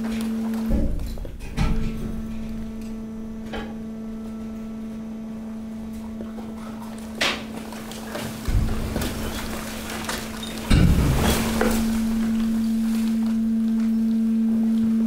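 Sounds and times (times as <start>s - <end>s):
hydraulic power unit humming: 0.0s - 15.0s
knocks and clatters: 6.4s - 12.9s.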